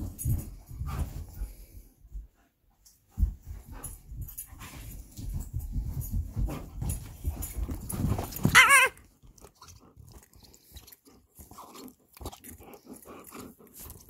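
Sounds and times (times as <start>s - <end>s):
dog whine or yelp: 8.4s - 9.0s.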